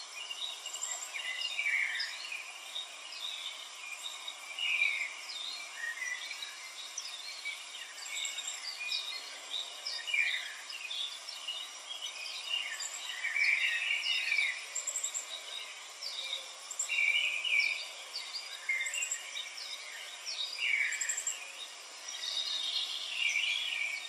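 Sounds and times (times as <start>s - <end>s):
birds chirping and trilling: 0.0s - 24.0s.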